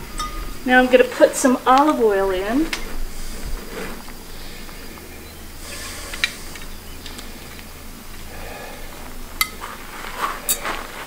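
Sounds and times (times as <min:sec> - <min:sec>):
oil hissing in a pot: 0:00.0 - 0:10.6
sharp clicks: 0:06.1 - 0:07.7.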